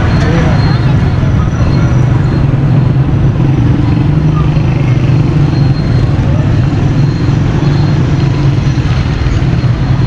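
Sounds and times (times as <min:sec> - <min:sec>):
loud low engine rumble: 0:00.0 - 0:10.0
street noise: 0:00.0 - 0:10.0.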